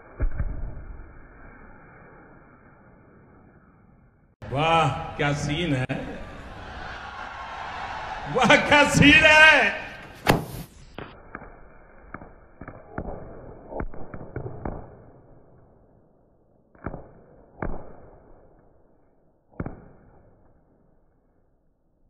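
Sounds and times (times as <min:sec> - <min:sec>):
firecrackers banging: 0:08.4 - 0:14.9.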